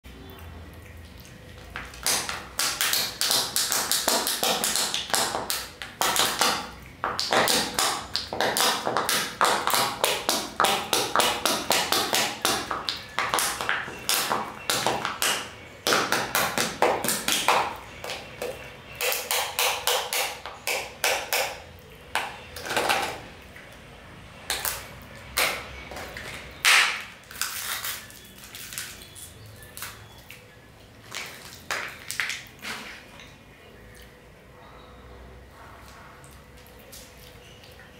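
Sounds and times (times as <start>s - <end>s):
foil wrapper crackling: 26.1s - 33.1s.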